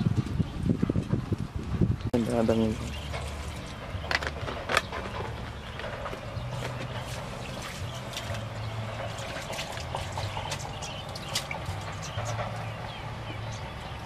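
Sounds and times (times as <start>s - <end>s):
water splashing in a steel bowl: 6.6s - 12.6s.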